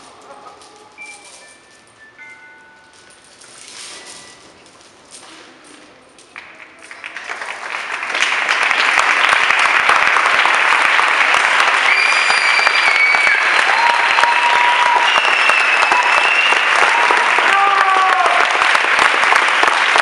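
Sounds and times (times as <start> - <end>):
audience applause: 6.4 - 20.0.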